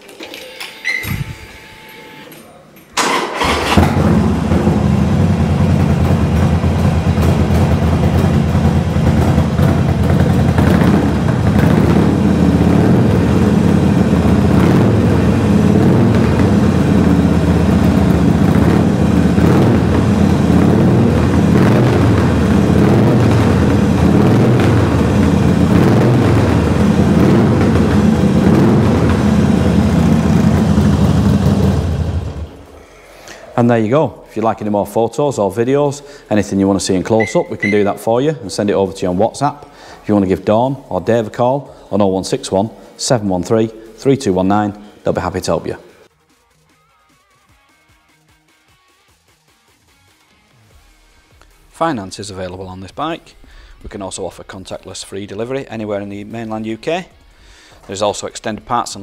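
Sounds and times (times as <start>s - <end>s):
electric starter cranking: 2.9s - 4.3s
motorcycle engine idling loudly: 3.4s - 32.8s.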